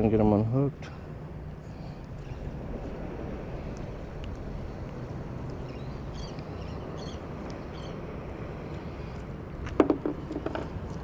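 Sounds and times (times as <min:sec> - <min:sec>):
wind rumble on microphone: 0:01.3 - 0:11.0.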